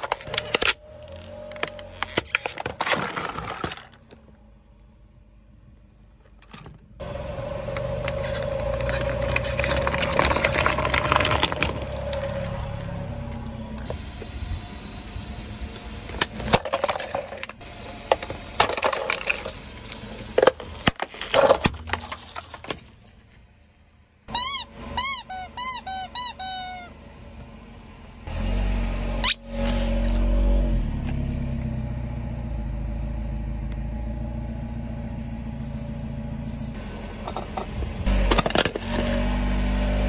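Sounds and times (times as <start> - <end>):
tyre crushing plastic and cans: 0.0 - 4.2, 8.0 - 12.4, 16.1 - 23.1, 38.2 - 39.1
car low rumble: 0.0 - 40.0.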